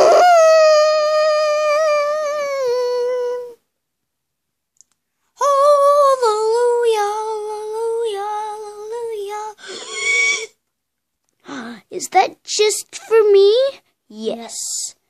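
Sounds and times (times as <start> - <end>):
child singing long notes: 0.0 - 3.6, 5.4 - 9.7.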